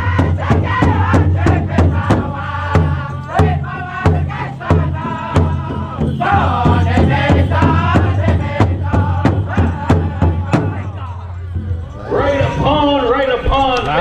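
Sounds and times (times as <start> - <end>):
high lead voice singing: 0.0 - 11.3
men singing together: 0.0 - 11.4
large bass drum beats: 0.0 - 13.7.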